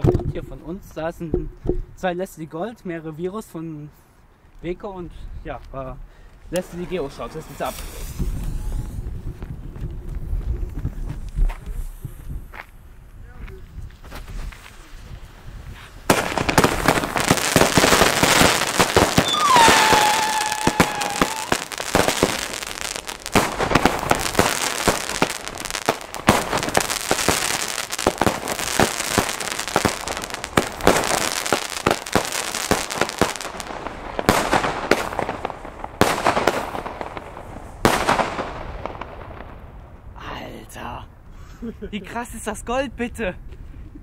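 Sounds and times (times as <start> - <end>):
fireworks firing and crackling: 6.5 - 12.2, 13.9 - 39.9
falling firework whistle: 18.3 - 22.6.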